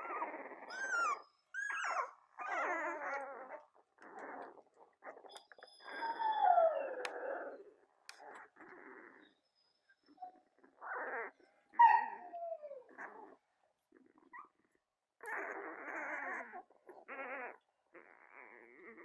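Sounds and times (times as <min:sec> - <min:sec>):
puppies whimpering and squealing: 0:00.0 - 0:19.0.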